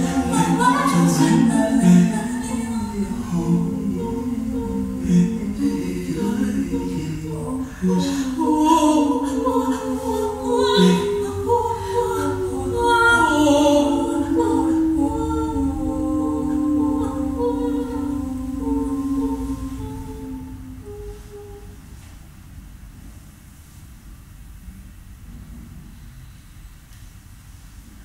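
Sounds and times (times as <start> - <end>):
group singing a cappella: 0.0 - 21.8.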